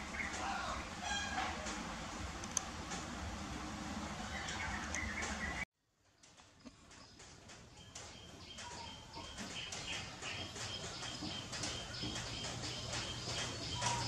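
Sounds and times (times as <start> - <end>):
small birds chirping: 4.2 - 14.0.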